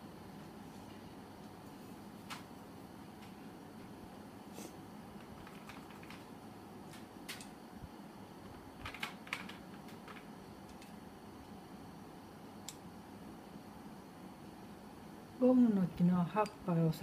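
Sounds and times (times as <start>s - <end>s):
faint room hum: 0.0s - 17.0s.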